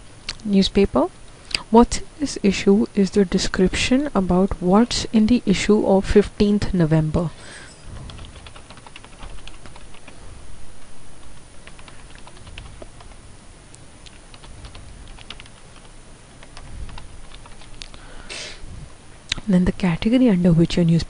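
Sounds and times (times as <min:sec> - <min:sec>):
typing on computer keyboard: 0:08.2 - 0:10.2, 0:11.6 - 0:13.2, 0:14.1 - 0:15.6, 0:16.4 - 0:17.7.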